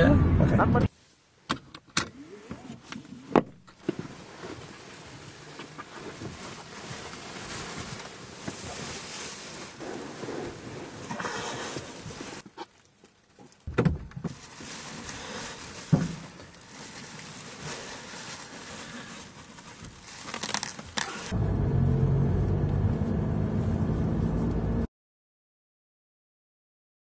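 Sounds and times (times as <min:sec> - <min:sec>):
plastic bin bag rustling: 0:03.8 - 0:12.4, 0:14.2 - 0:21.3
thump: 0:13.7 - 0:14.4.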